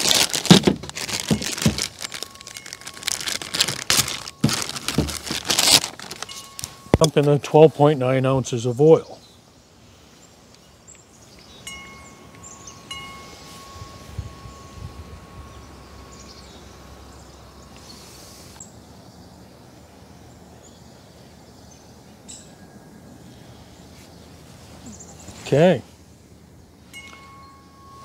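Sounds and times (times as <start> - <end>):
wind chime ringing: 1.3 - 4.8, 6.2 - 7.3, 11.6 - 17.8, 26.8 - 28.0.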